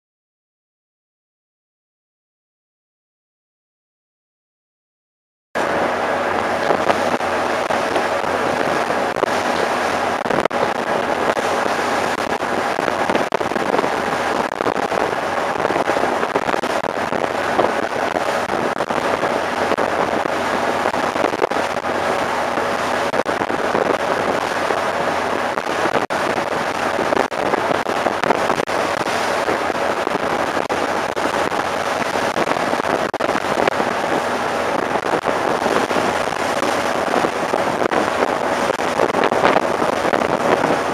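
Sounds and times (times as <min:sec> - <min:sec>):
faint ship engine hum: 0:05.6 - 0:40.9
wind buffeting microphone: 0:05.6 - 0:40.9
wind rushing: 0:05.6 - 0:40.9.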